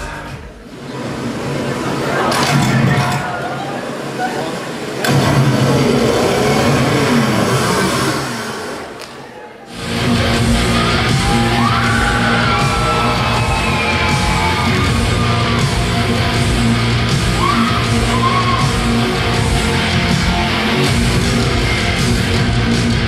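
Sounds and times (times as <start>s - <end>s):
hard rock music: 9.8s - 23.0s.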